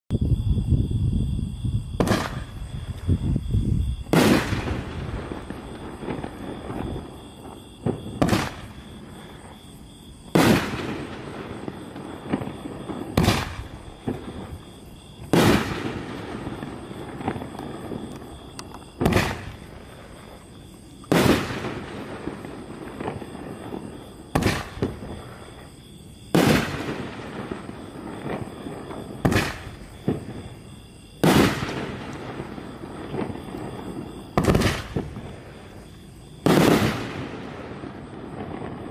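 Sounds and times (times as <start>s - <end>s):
firework launch thump: 2.0s - 3.1s.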